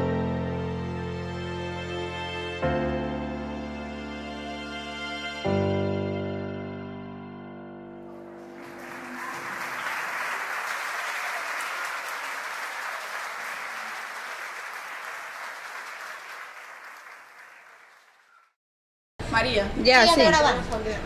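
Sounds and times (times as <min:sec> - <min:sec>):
group applauding: 0:08.2 - 0:18.6.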